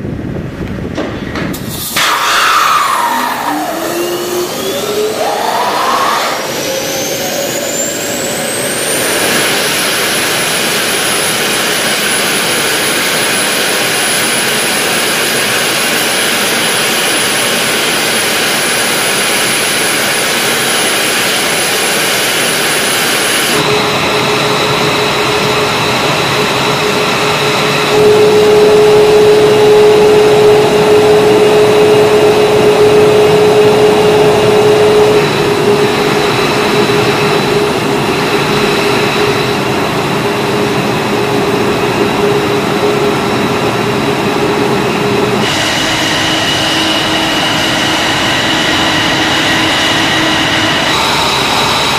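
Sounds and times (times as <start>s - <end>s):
jet engines roaring with whine: 0.0s - 51.9s.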